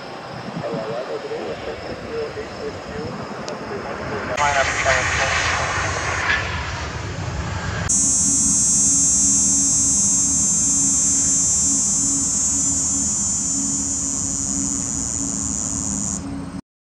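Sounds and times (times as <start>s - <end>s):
high-pitched turbine whine: 0.0s - 16.6s
rushing jet noise: 3.2s - 15.9s
low hum: 3.7s - 16.6s.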